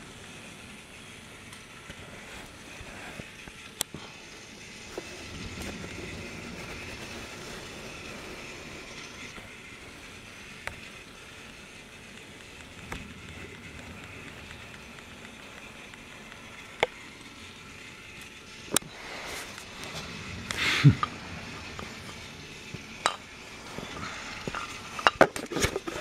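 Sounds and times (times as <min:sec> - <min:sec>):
toy train motor whirring: 0:00.0 - 0:26.0.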